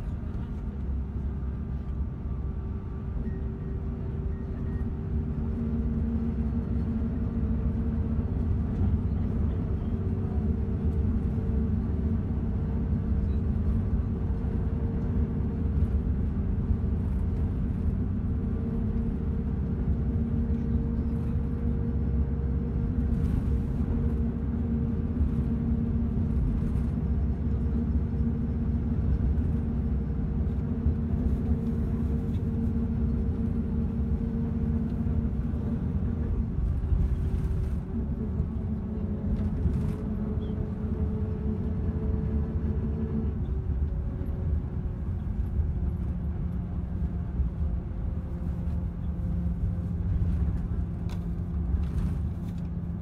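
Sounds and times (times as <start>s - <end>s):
vehicle engine and road noise: 0.0s - 53.0s.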